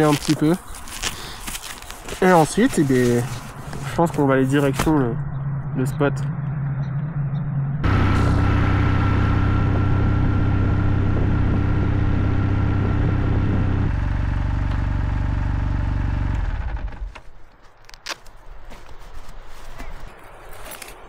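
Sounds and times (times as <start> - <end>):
motorcycle engine running: 4.6 - 17.1.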